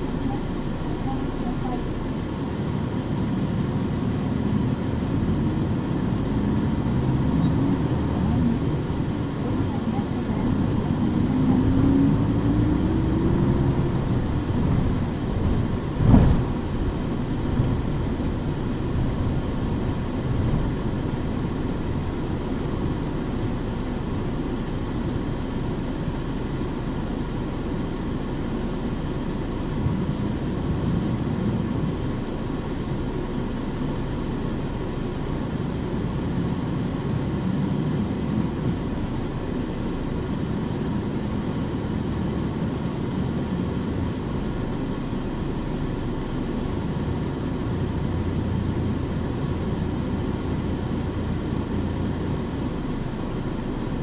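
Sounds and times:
bus diesel engine running: 0:00.0 - 0:54.0
sharp thump: 0:16.0 - 0:16.7.

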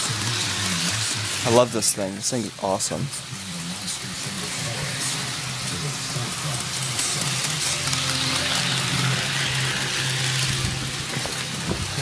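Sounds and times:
model train whirring on rails: 0:00.0 - 0:12.0.

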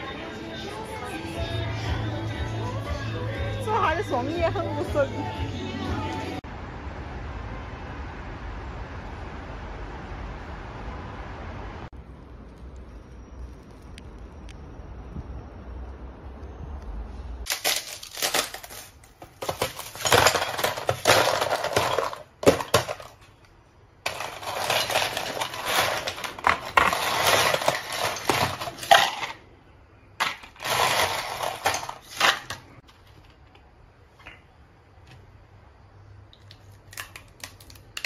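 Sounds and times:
ice cubes rattling into plastic cup: 0:17.5 - 0:23.2, 0:24.1 - 0:29.4, 0:30.2 - 0:32.6.

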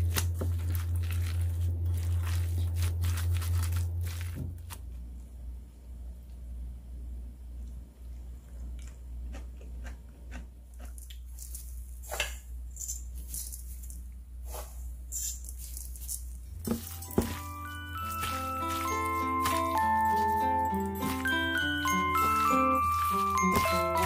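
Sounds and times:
steady low hum: 0:00.0 - 0:24.0
seeds pattering into a steel bowl: 0:15.1 - 0:24.0
music with chiming notes: 0:16.8 - 0:24.0.

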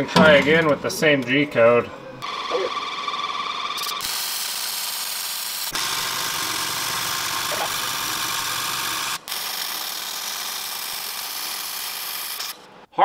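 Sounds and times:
welding arc hissing: 0:02.2 - 0:12.6.

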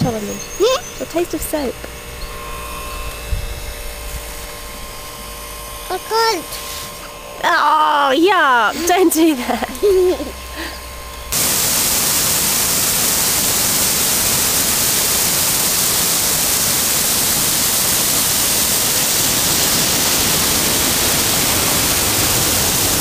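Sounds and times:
waterfall rushing: 0:11.3 - 0:23.0.

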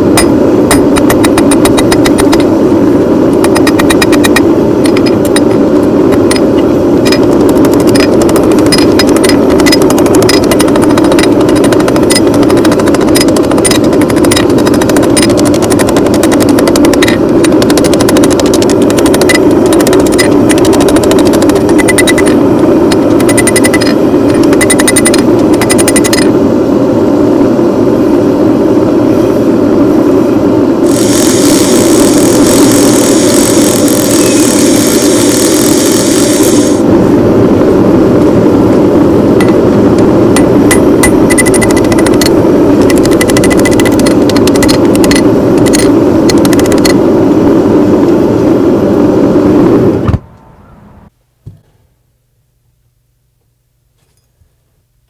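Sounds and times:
forge burner roaring: 0:00.0 - 0:51.1.

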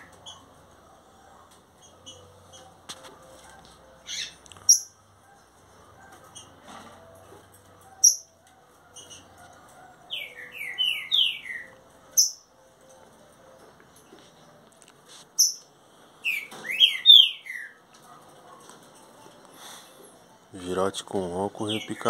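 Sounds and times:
bird singing whistled notes: 0:10.1 - 0:12.5, 0:16.2 - 0:17.8
sharp high bird notes: 0:10.1 - 0:12.5.

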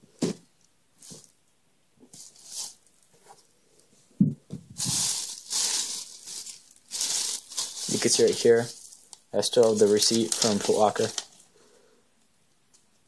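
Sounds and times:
plastic bag crinkling: 0:04.8 - 0:11.5.

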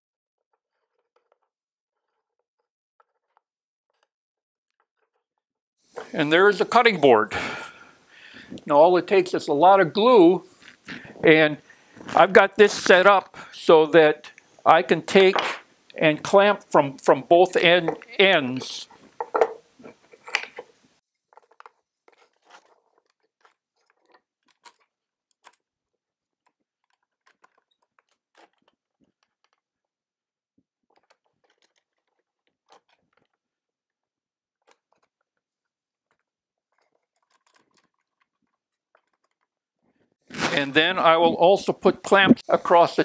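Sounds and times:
clamp screw clicks and creaks: 0:00.5 - 0:04.1, 0:26.3 - 0:29.8, 0:30.9 - 0:33.4, 0:36.1 - 0:39.6
wooden blocks shifting: 0:00.7 - 0:04.1, 0:05.9 - 0:09.2, 0:14.4 - 0:29.8, 0:30.8 - 0:33.6, 0:34.5 - 0:39.7, 0:40.3 - 0:41.2.

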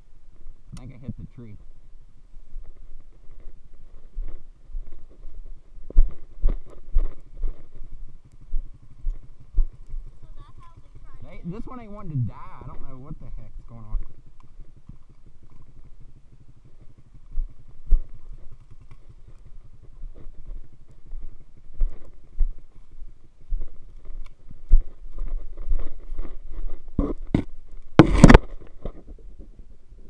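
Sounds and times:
rubbing and knocks on microphone: 0:24.7 - 0:29.5.

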